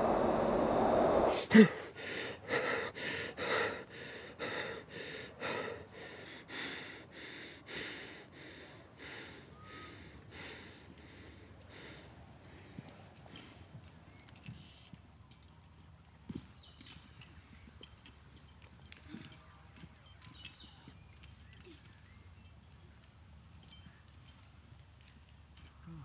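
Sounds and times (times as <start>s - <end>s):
low rumbling drone: 0.0s - 1.4s
man gasping: 1.3s - 12.0s
man breathing hard: 1.3s - 13.7s.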